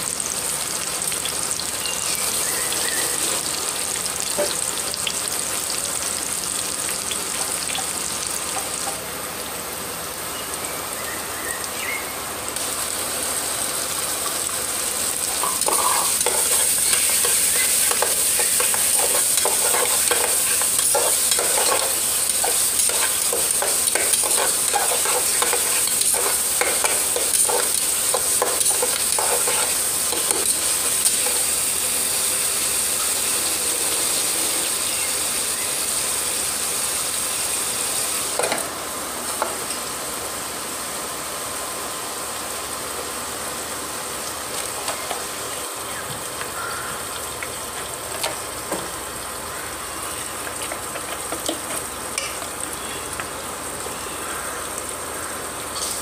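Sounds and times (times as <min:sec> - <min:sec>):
vegetables sizzling in hot oil: 0:00.0 - 0:56.0
spatula scraping a pot: 0:15.4 - 0:27.7.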